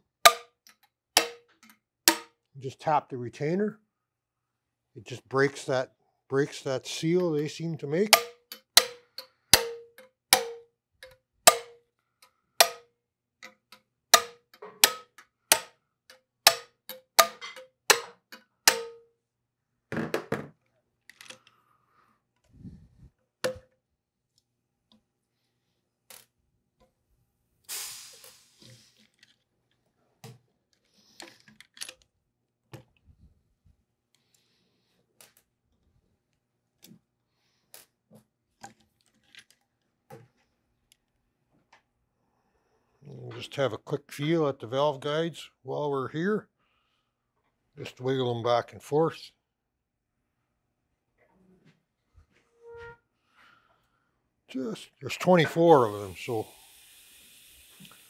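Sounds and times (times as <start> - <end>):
hammer tapping on metal: 8.1 - 11.8, 12.6 - 13.6, 14.2 - 15.7, 16.5 - 19.0
clinks of loose valve parts: 8.1 - 19.0.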